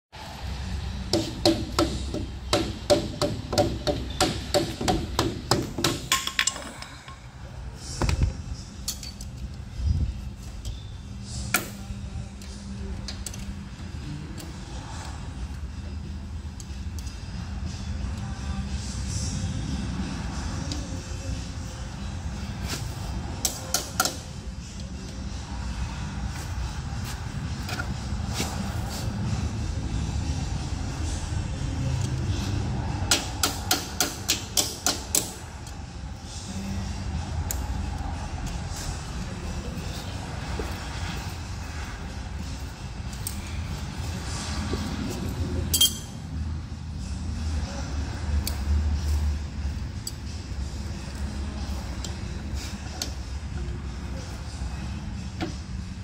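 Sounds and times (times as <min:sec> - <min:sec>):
steady low rumble: 0:06.7 - 0:56.0
pliers tapping metal cap: 0:45.7 - 0:46.1.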